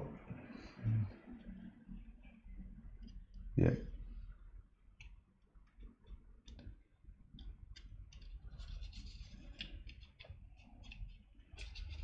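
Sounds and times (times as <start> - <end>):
small plastic parts clicking: 7.4 - 12.0.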